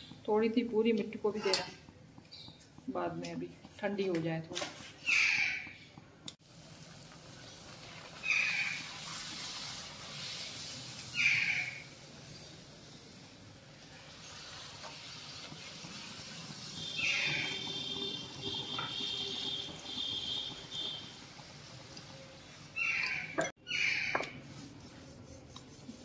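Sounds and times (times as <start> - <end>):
food sizzling in hot oil: 6.4 - 23.5.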